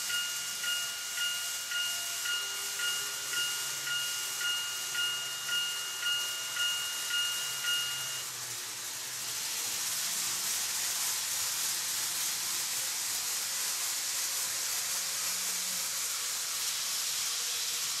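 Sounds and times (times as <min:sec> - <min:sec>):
level crossing warning bell: 0:00.0 - 0:08.3
model train whirring on track: 0:00.0 - 0:18.0.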